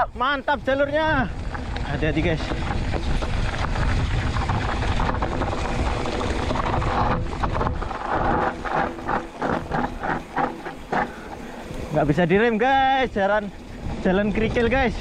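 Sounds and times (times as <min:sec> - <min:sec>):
wind buffeting microphone: 0:00.0 - 0:15.0
bike tyres rattling over ground: 0:00.4 - 0:15.0
irregular knocks and rattles: 0:01.4 - 0:11.7.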